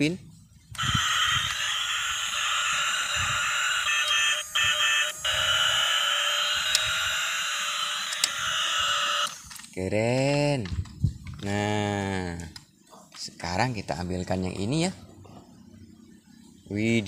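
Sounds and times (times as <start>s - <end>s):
toy electronic tone pattern: 0.8s - 9.3s
sharp clicks: 8.0s - 8.4s.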